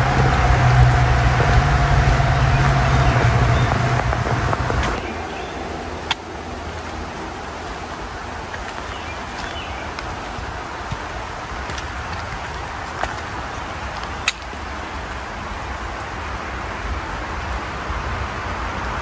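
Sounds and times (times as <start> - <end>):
vehicle passing whine: 0.0 - 8.2
highway traffic drone: 0.0 - 19.0
steady hiss: 0.0 - 19.0.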